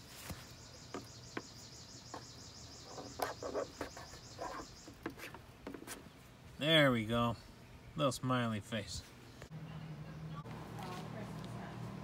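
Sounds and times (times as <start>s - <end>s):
scratchy handling sounds: 2.8s - 6.2s.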